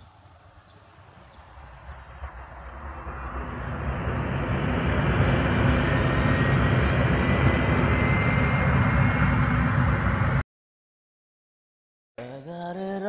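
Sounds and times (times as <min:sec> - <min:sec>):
jet engines rumbling on takeoff: 0:00.0 - 0:10.4.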